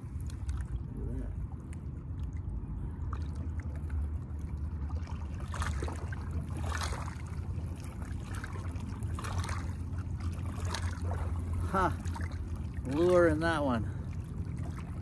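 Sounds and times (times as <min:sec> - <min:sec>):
low rumble: 0:00.0 - 0:15.0
water lapping against rocks: 0:00.0 - 0:15.0
water splashes: 0:00.0 - 0:15.0.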